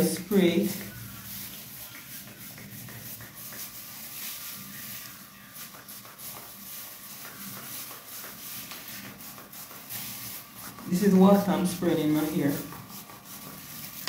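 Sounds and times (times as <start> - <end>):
plastic gloves rustling: 0.0 - 14.0
spray bottle hissing sprays: 0.5 - 14.0.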